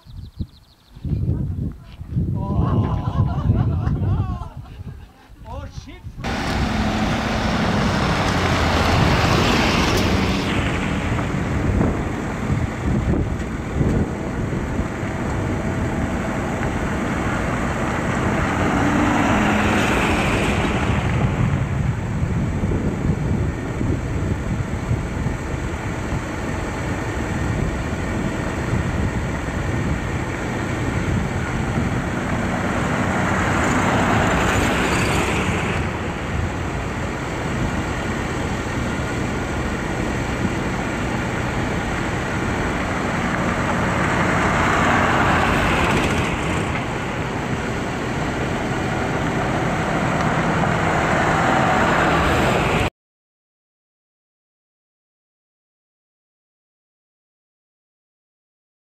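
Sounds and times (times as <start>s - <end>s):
truck engines running: 6.2s - 52.9s.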